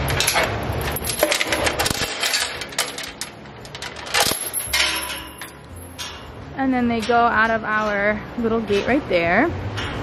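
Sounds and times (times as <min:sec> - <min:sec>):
chain rattling on metal gate: 0:00.0 - 0:06.3.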